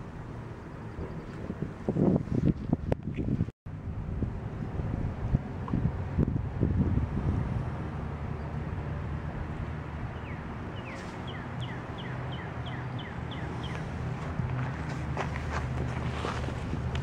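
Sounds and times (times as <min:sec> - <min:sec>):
bird chirping: 0:10.2 - 0:13.9.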